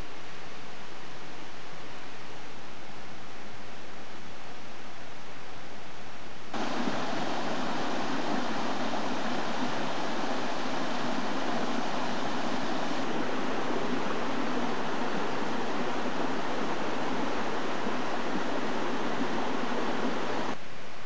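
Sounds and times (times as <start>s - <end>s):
steady rushing outdoor noise: 6.4s - 21.0s.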